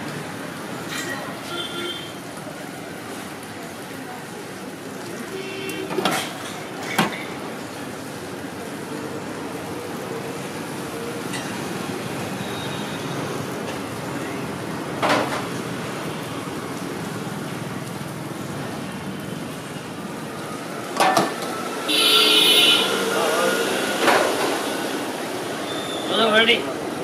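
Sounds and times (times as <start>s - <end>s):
street traffic din: 0.0s - 27.0s
metal cookware clanking on griddle: 0.8s - 1.3s.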